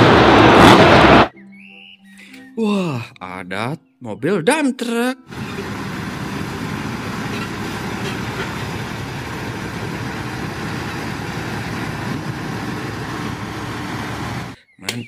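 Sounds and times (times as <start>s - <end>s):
dump truck diesel engine: 5.3s - 14.6s.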